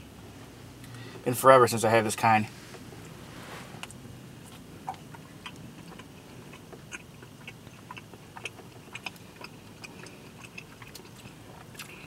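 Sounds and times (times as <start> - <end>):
person chewing: 3.8 - 12.0.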